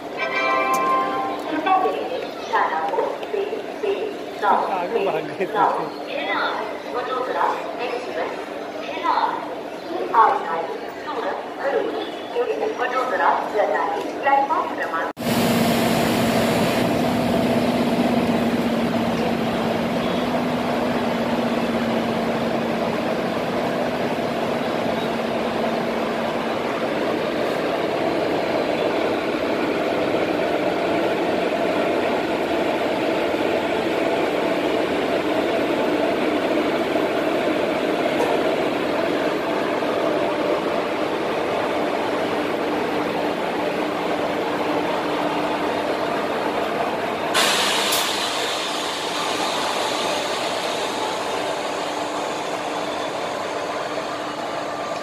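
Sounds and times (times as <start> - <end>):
locomotive machinery hum: 12.6 - 55.0.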